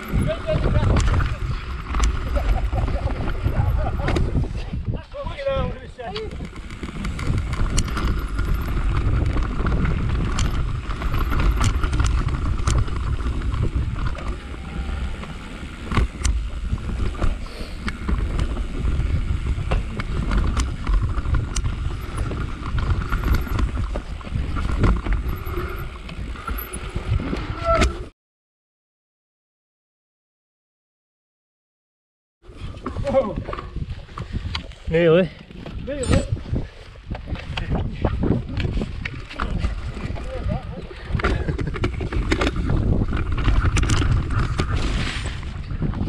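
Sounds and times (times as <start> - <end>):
wind buffeting microphone: 0.0 - 28.0, 32.5 - 46.0
bike rattling: 0.0 - 28.1, 32.4 - 46.0
tyres rumbling over ground: 5.4 - 27.5.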